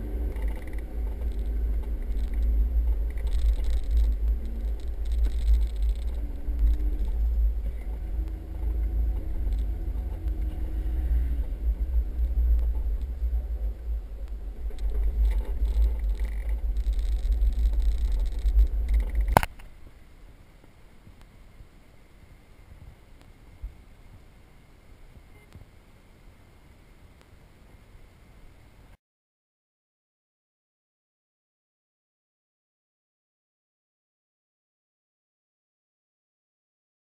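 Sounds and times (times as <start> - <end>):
vehicle engine rumbling: 0.0 - 26.9
faint hiss: 0.0 - 29.0.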